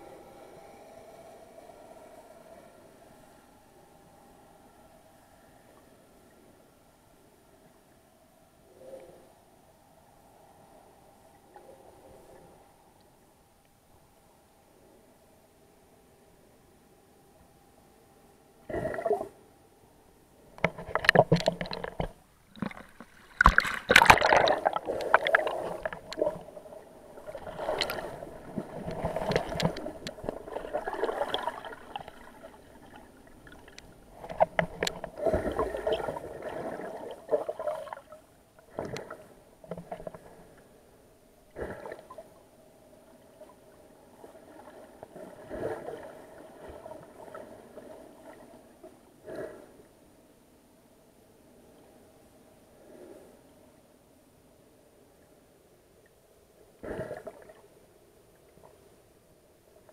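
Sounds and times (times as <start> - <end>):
muffled water sloshing underwater: 17.4 - 59.9.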